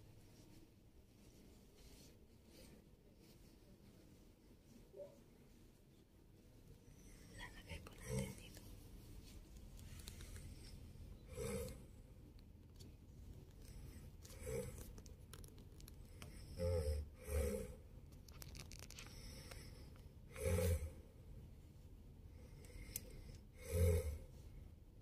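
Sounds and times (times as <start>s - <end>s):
man snoring loudly: 20.3s - 21.0s, 23.6s - 24.2s.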